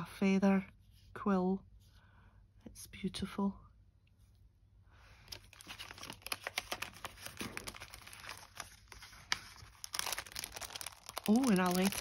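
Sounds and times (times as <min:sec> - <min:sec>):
packaging crinkling: 0:05.3 - 0:12.0.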